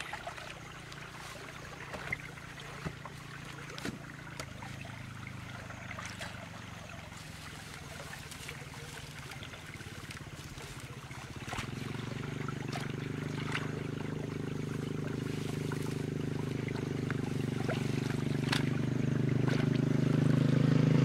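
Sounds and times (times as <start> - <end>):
water trickling: 0.0 - 20.6
small engine running: 0.0 - 21.0
digging knocks and rustles: 1.0 - 4.8, 14.9 - 19.8.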